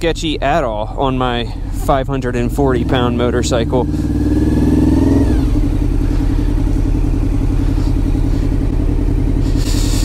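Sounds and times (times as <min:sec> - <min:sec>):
motorcycle engine at low revs: 0:00.0 - 0:10.0.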